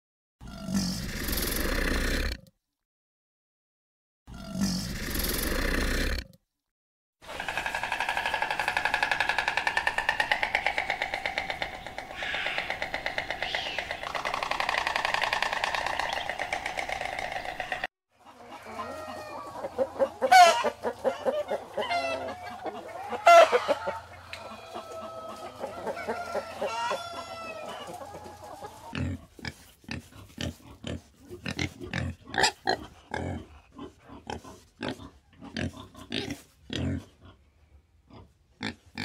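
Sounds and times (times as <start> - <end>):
pigs grunting: 0.4 - 2.4, 4.3 - 6.3, 7.2 - 17.9, 28.8 - 39.0
hens and roosters clucking: 7.2 - 36.5.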